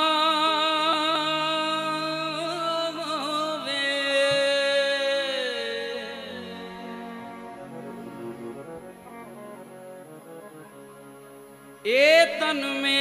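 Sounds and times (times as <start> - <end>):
man singing with vibrato: 0.0 - 7.6, 11.8 - 13.0
musical accompaniment: 1.2 - 12.8.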